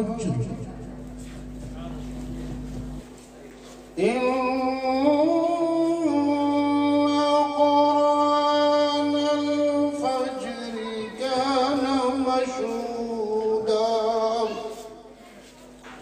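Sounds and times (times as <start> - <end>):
man reciting melodically: 0.0 - 0.6, 4.0 - 15.1.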